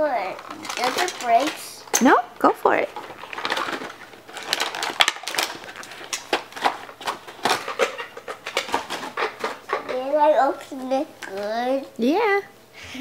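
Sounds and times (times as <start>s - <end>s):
packaging crinkling and rustling: 0.0s - 10.2s.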